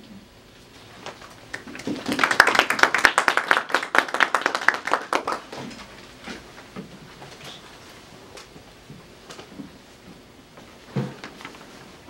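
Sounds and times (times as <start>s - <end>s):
audience applauding: 1.3s - 5.8s.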